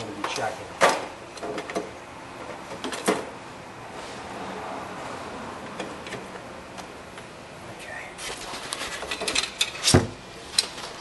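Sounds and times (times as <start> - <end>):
tools clicking and knocking: 9.0 - 10.8.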